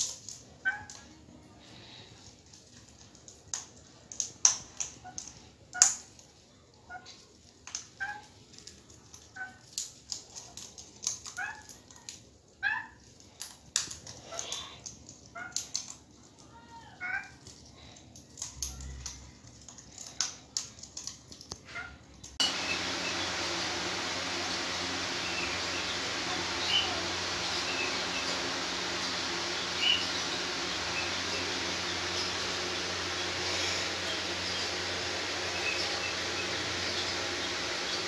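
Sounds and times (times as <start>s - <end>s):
parrots cracking seeds: 0.0s - 1.2s, 1.8s - 38.0s
parrots soft squeaky calls: 8.0s - 8.3s.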